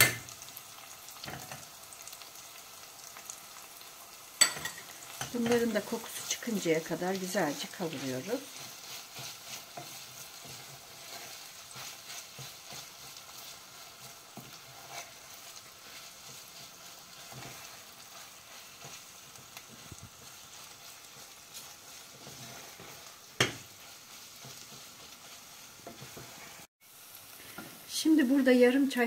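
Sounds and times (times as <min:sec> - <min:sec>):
soft frying sizzle: 0:00.0 - 0:29.0
wooden spoon scraping a pot: 0:04.7 - 0:26.7.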